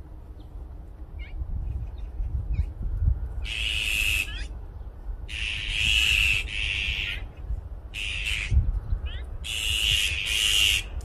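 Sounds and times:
magpies harsh rasping calls: 3.4s - 4.5s, 5.3s - 7.3s, 7.9s - 10.9s.

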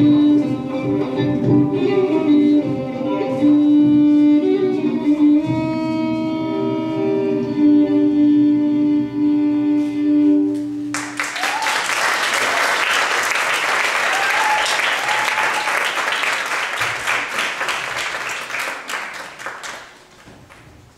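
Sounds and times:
plucked and bowed strings music: 0.0s - 10.6s
audience applause: 10.9s - 20.6s.

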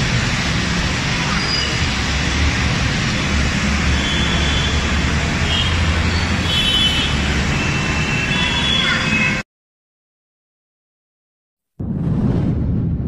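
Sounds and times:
traffic engine rumble: 0.0s - 9.4s
traffic hiss: 0.0s - 9.4s.

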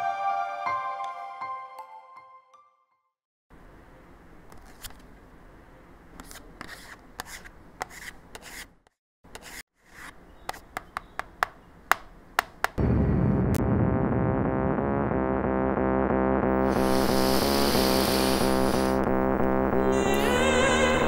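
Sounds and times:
card scraping on tabletop: 6.2s - 8.7s.

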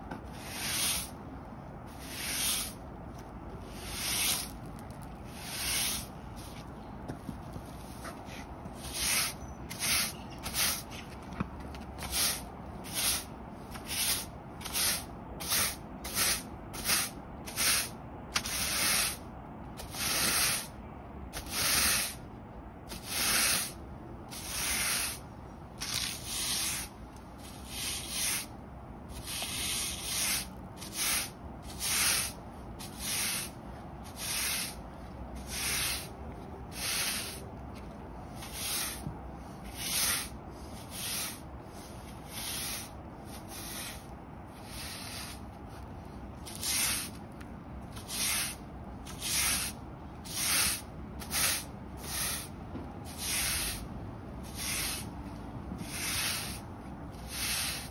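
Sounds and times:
broom sweeping on concrete: 0.2s - 1.2s, 1.9s - 2.9s, 3.6s - 22.3s, 22.9s - 57.9s.

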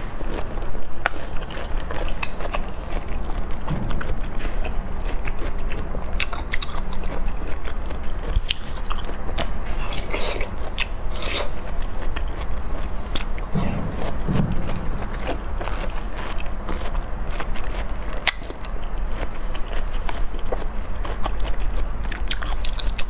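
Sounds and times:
low hum: 0.0s - 23.0s
mouth smacks and chewing: 0.2s - 23.0s.

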